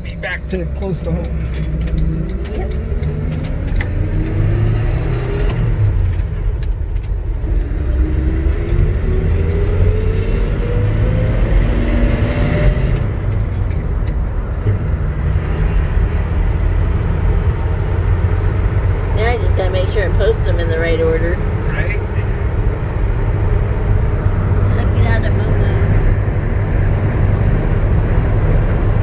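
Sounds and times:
pickup truck engine: 0:00.0 - 0:29.0
road rumble: 0:00.0 - 0:29.0.

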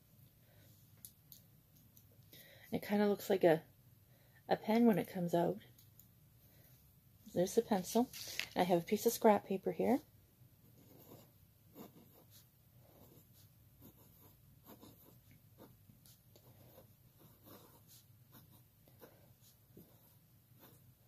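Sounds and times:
pencil scratching on paper: 0:10.6 - 0:21.0.

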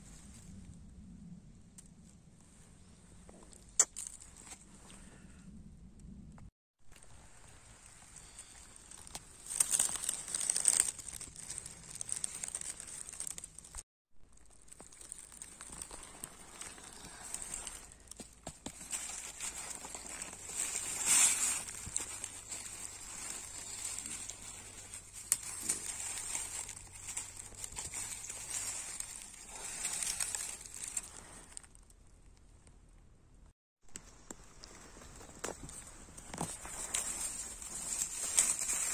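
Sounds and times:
twigs snapping: 0:03.4 - 0:04.6, 0:08.1 - 0:32.0, 0:33.9 - 0:38.9
dry leaves rustling and crackling: 0:06.9 - 0:31.9, 0:34.0 - 0:38.9.

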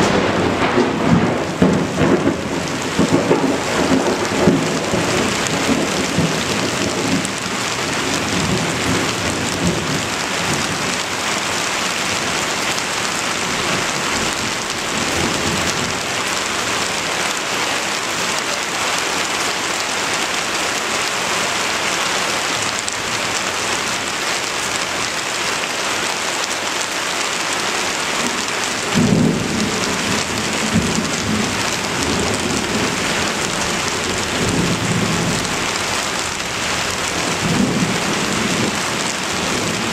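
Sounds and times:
thunder rumbling: 0:00.0 - 0:17.2, 0:28.2 - 0:39.9
heavy rain: 0:00.0 - 0:39.9.

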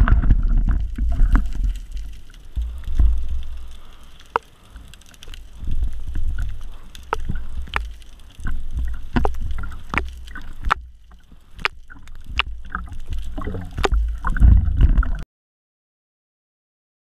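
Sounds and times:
seawater sloshing and splashing: 0:00.0 - 0:15.2
sharp clicks and pops: 0:00.0 - 0:15.2.

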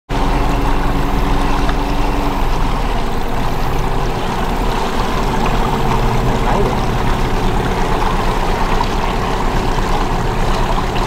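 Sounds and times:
outboard motor running: 0:00.1 - 0:11.0
rushing water: 0:00.1 - 0:11.0.

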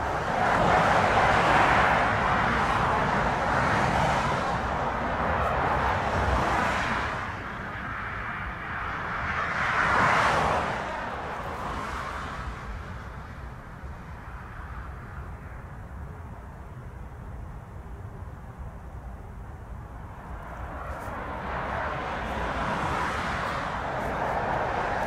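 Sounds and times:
jet engines roaring: 0:19.9 - 0:25.0.

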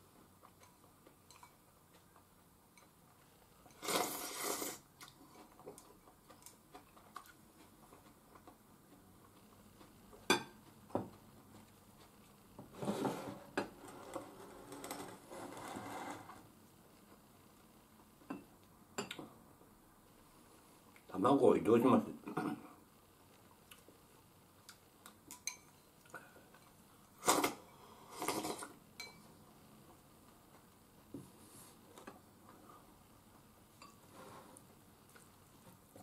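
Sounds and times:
slurping soup: 0:03.7 - 0:04.9, 0:27.2 - 0:28.7.

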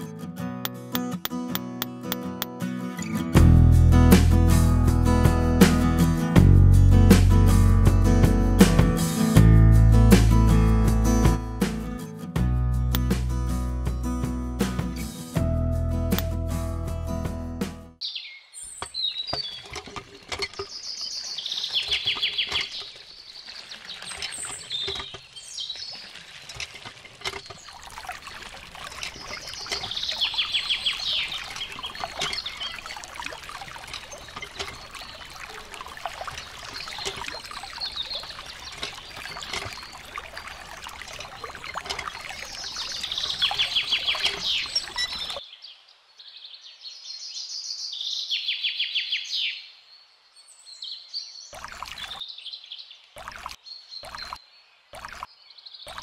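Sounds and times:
water pouring and trickling: 0:18.6 - 0:45.4, 0:51.6 - 0:52.2, 0:53.1 - 0:54.4, 0:55.0 - 0:55.3
songbird trilling: 0:29.2 - 0:33.0, 0:42.1 - 0:45.4.

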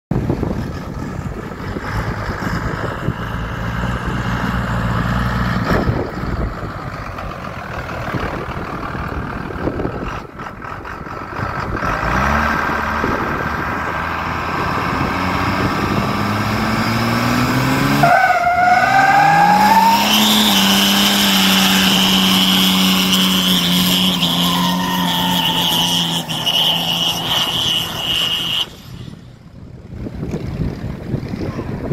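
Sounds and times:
diesel engine revving: 0:00.1 - 0:31.9
tyres squealing: 0:18.0 - 0:29.2.

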